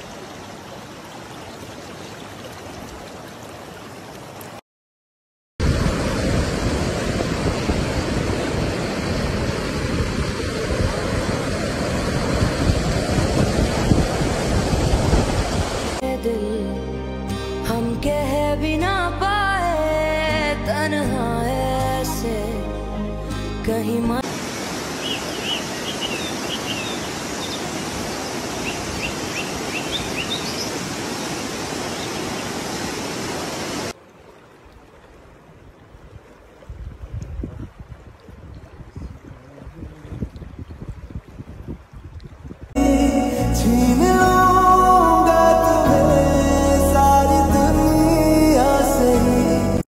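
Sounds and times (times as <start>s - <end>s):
stream rushing over rocks: 0.0s - 4.6s, 5.6s - 16.0s, 24.2s - 41.6s.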